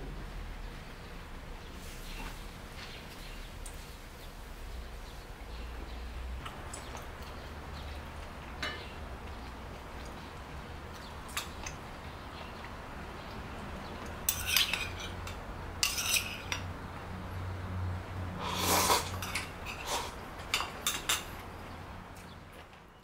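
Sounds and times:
utensils clinking on ceramic bowl: 8.6 - 9.0, 14.2 - 16.7, 19.1 - 21.4.

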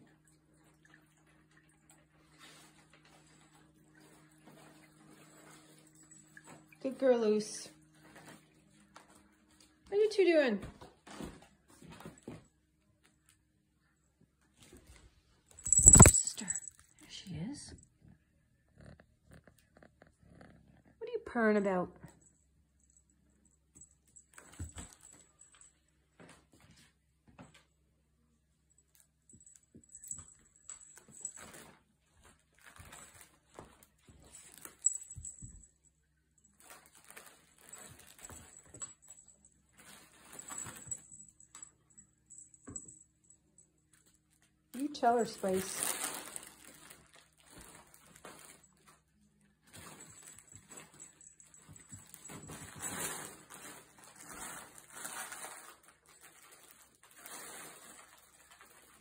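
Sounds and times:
fabric tunnel rustling on wood floor: 45.4 - 48.6, 51.8 - 59.0
kittens wrestling on a rug: 49.6 - 55.8.

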